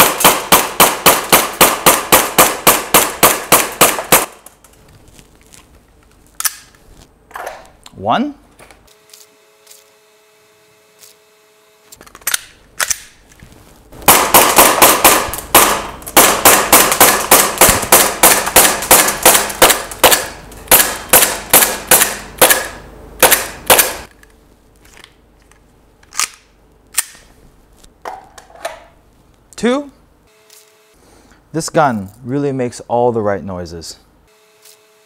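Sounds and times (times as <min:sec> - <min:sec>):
airsoft pistol shots: 0:00.0 - 0:04.4, 0:14.0 - 0:24.1.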